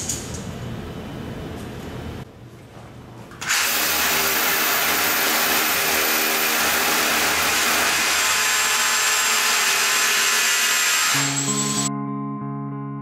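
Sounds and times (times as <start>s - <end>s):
rotary hammer drilling into masonry: 3.4s - 11.9s.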